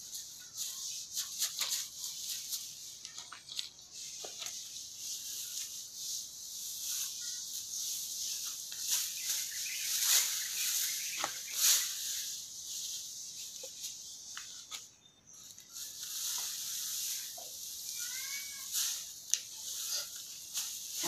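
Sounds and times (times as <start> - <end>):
dry grass rustling and crackling: 0.0 - 21.0
steady high hiss: 3.8 - 21.0.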